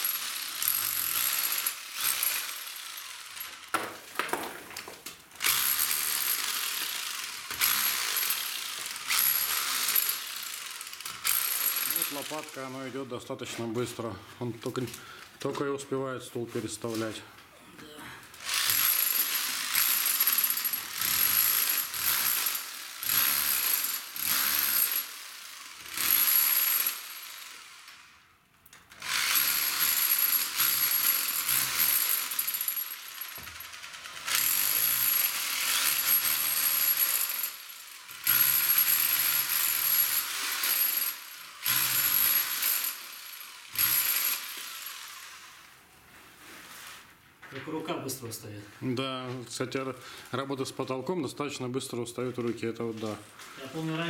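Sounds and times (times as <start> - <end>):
rotary hammer chipping concrete: 0.0 - 12.7, 18.4 - 27.6, 29.0 - 45.3.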